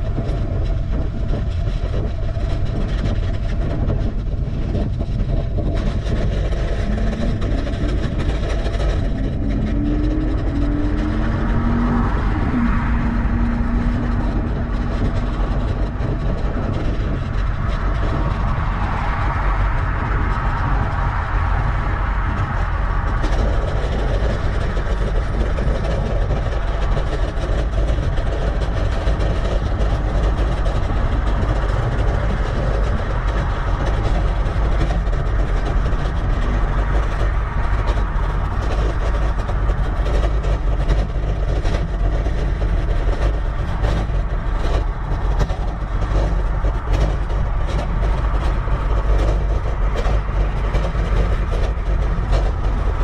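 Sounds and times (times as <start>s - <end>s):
bicycle tyre and road noise: 0.0s - 53.0s
wind rumble on microphone: 0.0s - 53.0s.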